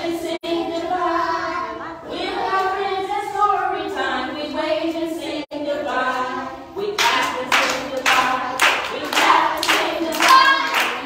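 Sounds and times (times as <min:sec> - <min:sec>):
voices singing a children's song: 0:00.0 - 0:11.0
hands clapping along: 0:07.0 - 0:11.0.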